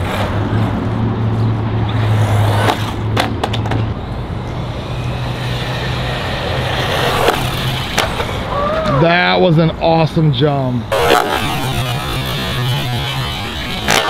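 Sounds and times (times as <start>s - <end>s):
rc car tyre and motor noise: 0.0s - 9.1s, 10.4s - 14.0s
low hum: 10.8s - 14.0s.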